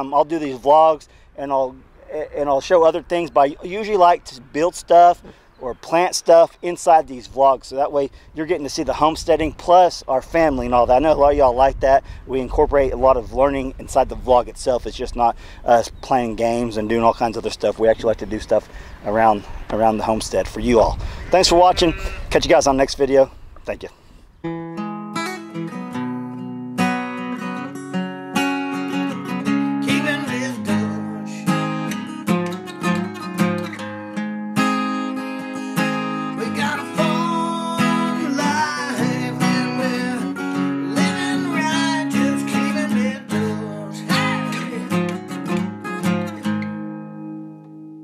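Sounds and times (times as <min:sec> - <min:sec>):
strummed acoustic guitar: 0:24.4 - 0:48.0.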